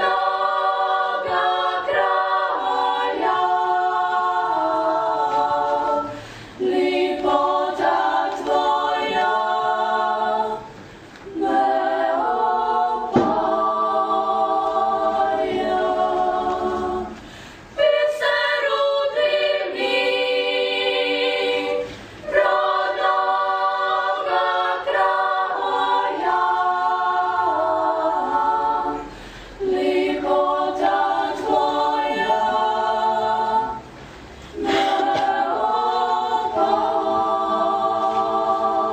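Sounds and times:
women singing a cappella harmony: 0.0 - 38.9.

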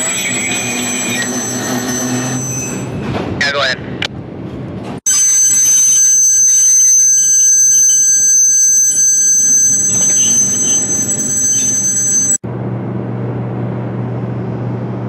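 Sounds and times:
freight car wheels squealing on rails: 0.0 - 3.1, 5.1 - 12.4
low rumble of train: 0.0 - 5.0, 12.4 - 15.0.

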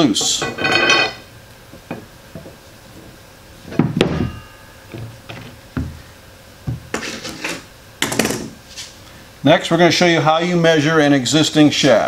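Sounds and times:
metallic clank with ring: 0.2 - 1.3, 4.1 - 4.9.

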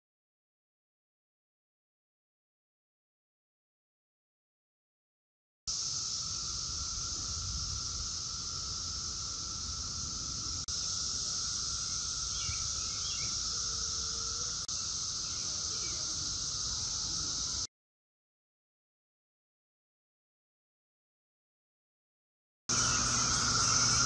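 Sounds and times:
cicadas high hiss: 5.7 - 17.7, 22.7 - 24.0
low steady drone: 22.7 - 24.0.

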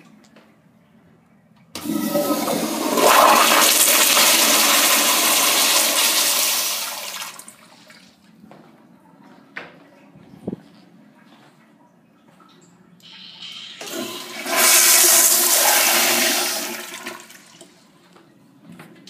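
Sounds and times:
toilet flushing water rush: 1.8 - 8.1, 13.3 - 17.7.

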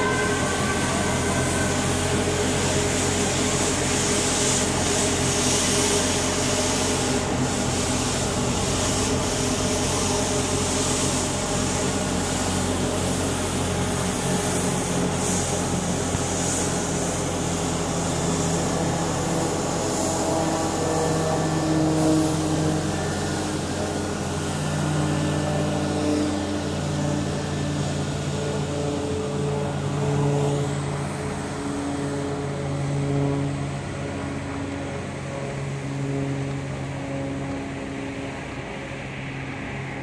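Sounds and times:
helicopter engine and rotor drone: 0.0 - 40.0.

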